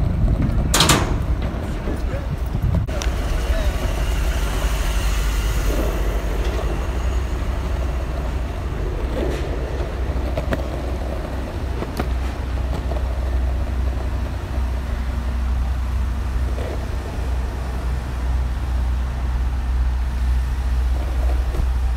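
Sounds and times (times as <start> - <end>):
skateboard wheels rolling on asphalt: 0.0 - 21.9
wheels clicking over cracks: 6.4 - 19.7.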